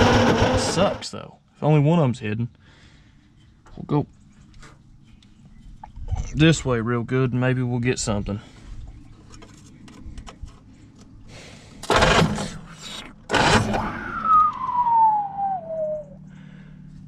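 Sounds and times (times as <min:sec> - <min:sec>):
starter motor cranking: 0:00.0 - 0:01.1, 0:11.8 - 0:14.7
whine falling in pitch: 0:13.6 - 0:16.6.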